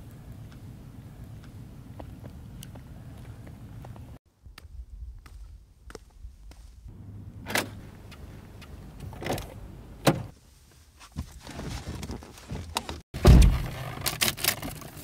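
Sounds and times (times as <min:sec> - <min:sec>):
car door opening: 0:09.0 - 0:10.3, 0:13.2 - 0:13.8.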